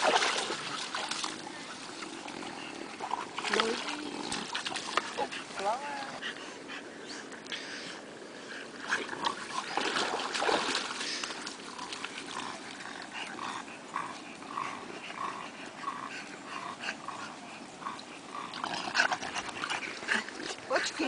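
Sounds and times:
dog panting: 12.8s - 21.0s.

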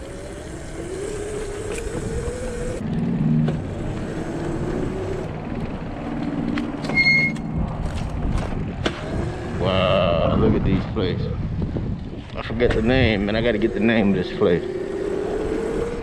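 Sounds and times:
tyres on rough ground: 0.0s - 9.6s
electric motor whine: 0.0s - 10.0s, 12.8s - 16.0s
wind on microphone: 0.0s - 16.0s
high squeak: 6.8s - 7.6s.

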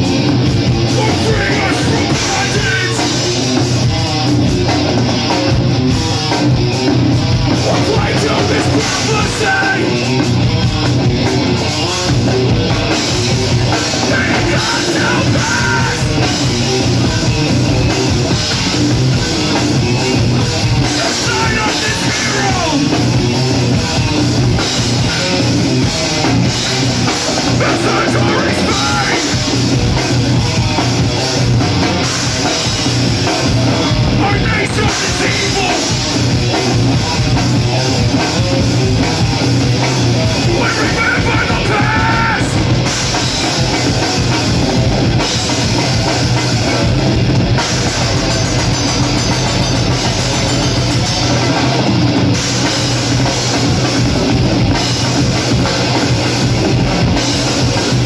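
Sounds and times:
distorted electric guitars: 0.0s - 58.0s
drum kit: 0.0s - 58.0s
person singing: 0.9s - 3.3s, 7.5s - 10.1s, 13.8s - 16.3s, 20.9s - 23.0s, 27.6s - 29.4s, 34.1s - 36.0s, 40.4s - 42.6s.

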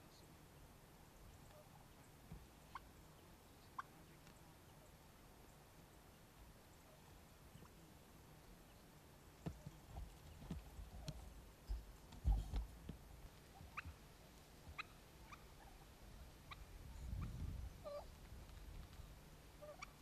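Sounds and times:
turkey calling: 1.4s - 4.9s, 9.5s - 12.6s, 13.3s - 20.0s
tripod knocks and thumps: 10.3s - 13.0s.

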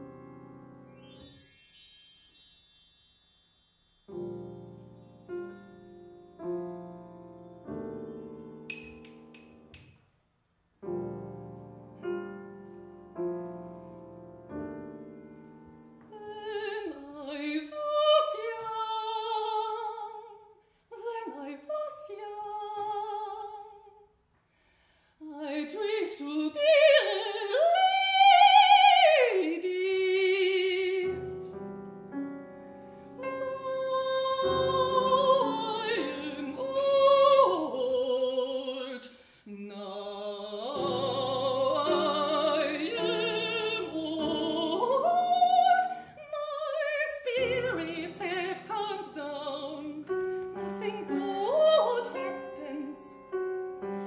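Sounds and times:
soprano singing operatically: 16.0s - 24.1s, 25.2s - 31.3s, 33.2s - 54.0s.

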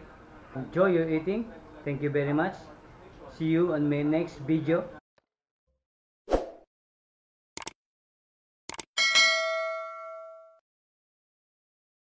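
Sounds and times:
quick clicks: 7.6s - 7.8s, 8.7s - 8.9s
notification bell ding: 9.0s - 10.6s.

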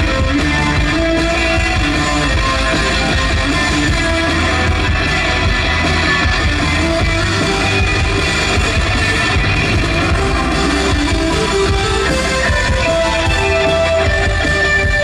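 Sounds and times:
drum kit: 0.0s - 15.0s
guitar strumming: 0.0s - 15.0s.

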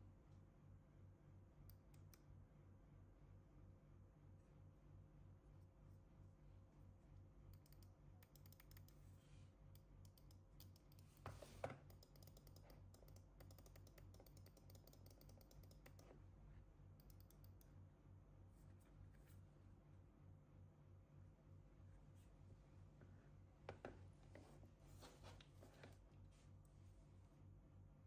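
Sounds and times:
faint low hum: 0.0s - 28.0s.

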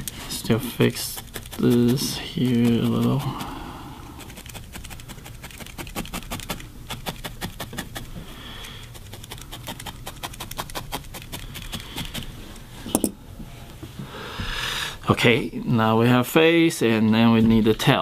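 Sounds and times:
felting needle poking wool: 0.9s - 3.5s.

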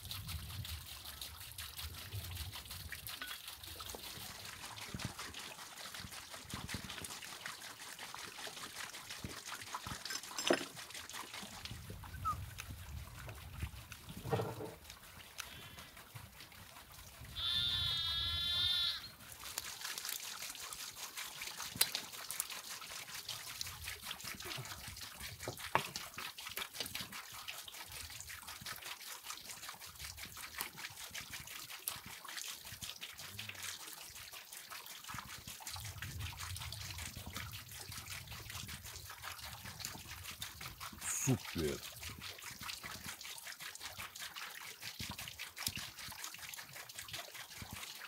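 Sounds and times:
fine crackle of small ticks: 15.3s - 16.1s, 21.7s - 22.5s
wavering bleat: 17.4s - 19.1s.

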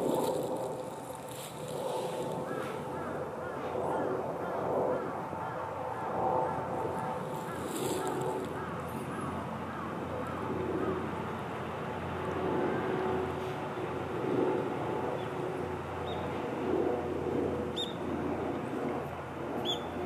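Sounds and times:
distant vehicles rumbling: 0.0s - 20.0s.

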